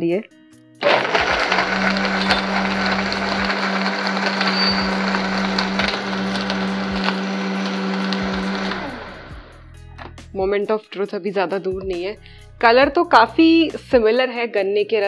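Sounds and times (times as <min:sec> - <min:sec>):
blender grinding ice: 0:00.8 - 0:09.6
blender spinning down: 0:00.8 - 0:09.6.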